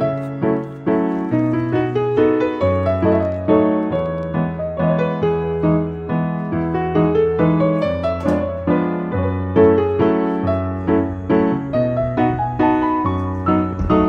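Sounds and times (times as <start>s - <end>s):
gentle piano music: 0.0s - 14.0s.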